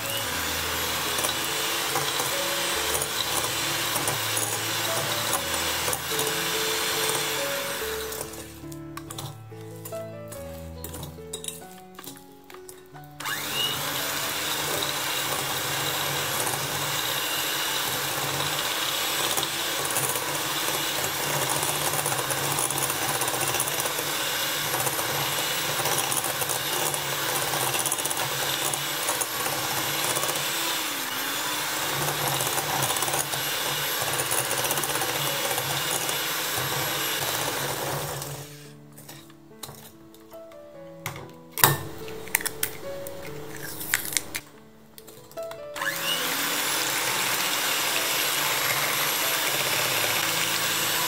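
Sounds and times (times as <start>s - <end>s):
electric mixer running: 0.0s - 9.9s, 13.2s - 38.8s, 45.8s - 51.0s.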